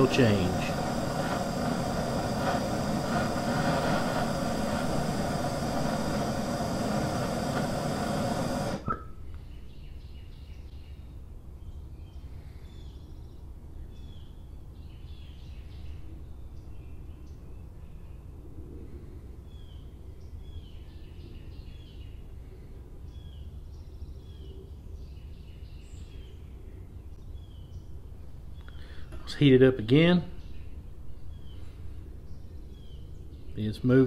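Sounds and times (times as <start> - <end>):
flame shutting off pop: 0.0 - 9.0
gas torch hissing: 0.0 - 9.0.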